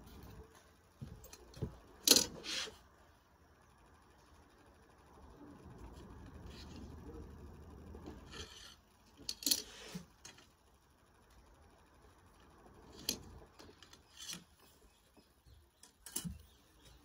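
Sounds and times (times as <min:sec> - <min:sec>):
scraping rustle: 0:02.2 - 0:02.9.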